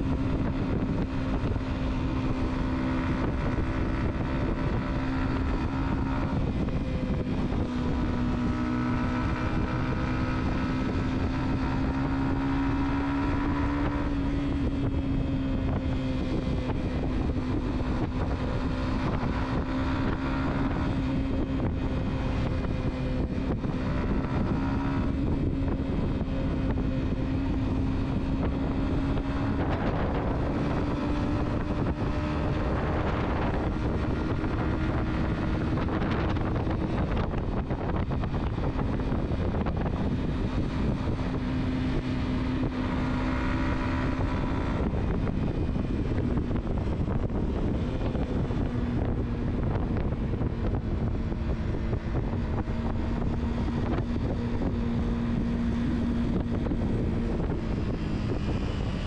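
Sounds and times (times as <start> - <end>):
car engine hum: 0.0 - 59.0
road and wind noise: 0.0 - 59.0.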